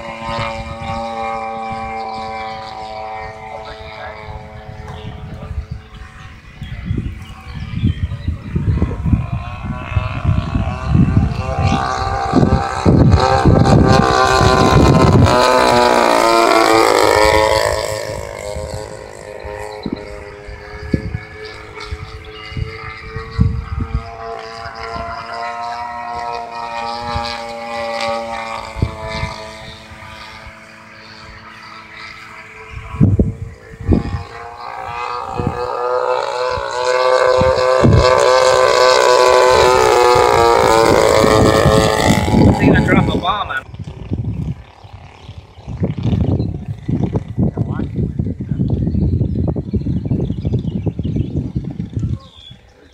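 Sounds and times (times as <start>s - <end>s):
model airplane engine passing: 0.0s - 52.9s
wind buffeting microphone: 0.0s - 52.9s.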